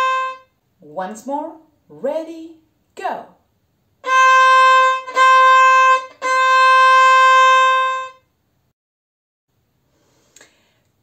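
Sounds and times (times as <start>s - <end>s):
violin notes: 0.0s - 0.6s, 4.0s - 8.3s.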